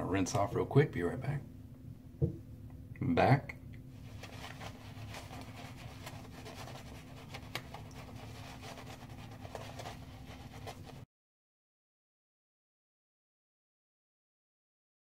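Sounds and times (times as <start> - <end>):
shaving brush rubbing lather: 4.0 - 11.0.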